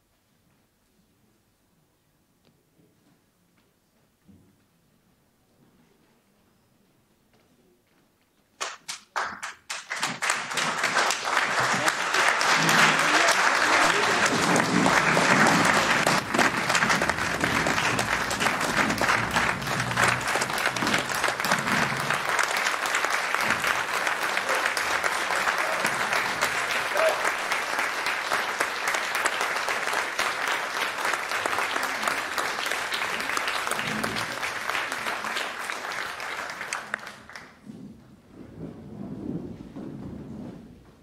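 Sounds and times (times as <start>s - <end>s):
room of people applauding: 8.6s - 37.7s.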